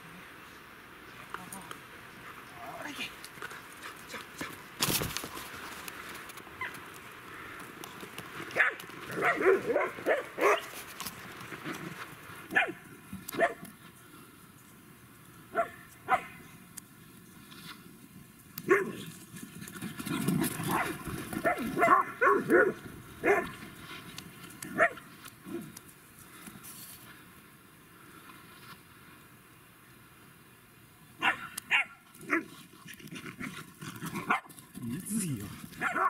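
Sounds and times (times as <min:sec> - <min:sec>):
dogs barking: 0:08.6 - 0:10.7, 0:12.5 - 0:12.8, 0:15.5 - 0:16.4, 0:18.7 - 0:19.0, 0:20.7 - 0:23.6, 0:24.7 - 0:25.0, 0:31.2 - 0:32.5, 0:35.8 - 0:36.0.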